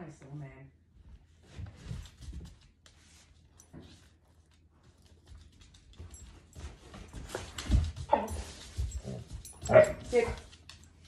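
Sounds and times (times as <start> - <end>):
footsteps on hard floor: 1.0 - 10.9
dog claws ticking on floor: 1.8 - 11.0.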